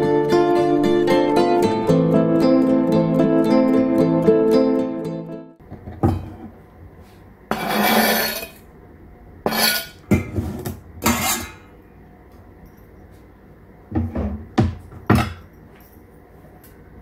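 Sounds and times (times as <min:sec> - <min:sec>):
knife scraping cutting board: 0:07.5 - 0:08.6, 0:09.5 - 0:11.6.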